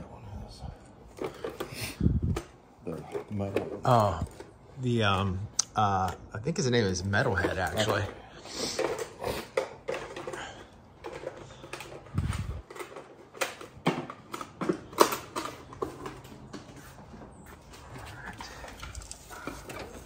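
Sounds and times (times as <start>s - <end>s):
plastic figures clicking and clattering: 7.0s - 16.8s.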